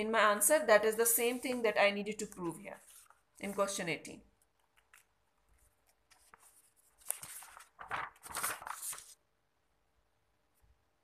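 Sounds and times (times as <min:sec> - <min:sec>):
paper rustling: 0:01.0 - 0:03.8, 0:04.5 - 0:09.3.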